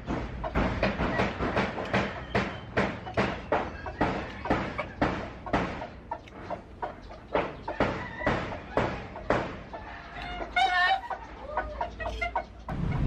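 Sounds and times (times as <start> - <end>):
sharp knocks: 0.0 - 6.0, 7.3 - 9.6
chicken clucking: 0.0 - 13.0.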